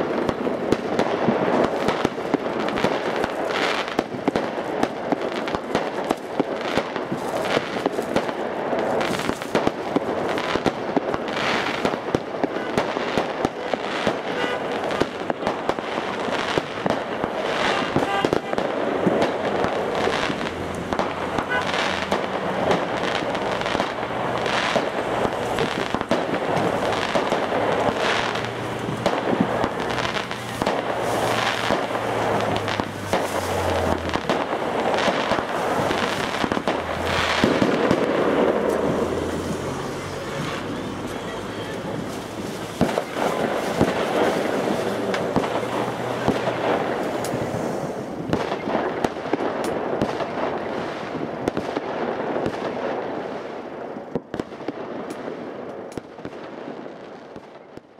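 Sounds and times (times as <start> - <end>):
fireworks bangs and crackles: 0.0 - 57.9
passing cars engine hum: 18.8 - 48.2.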